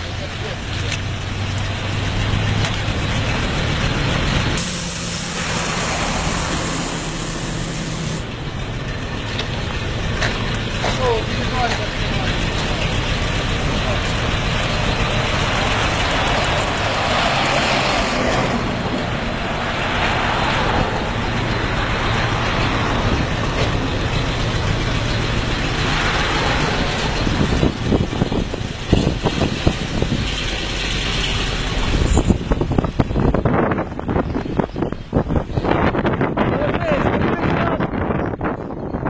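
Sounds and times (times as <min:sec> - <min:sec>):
vehicle engines running: 0:00.0 - 0:39.0
wind buffeting microphone: 0:18.1 - 0:39.0.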